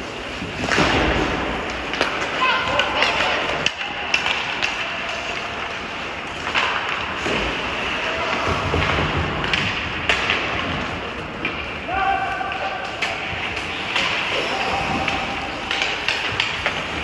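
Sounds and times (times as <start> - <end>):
stick hitting puck: 0.5 - 7.6, 8.3 - 11.7, 12.4 - 17.0
players shouting: 11.7 - 16.6.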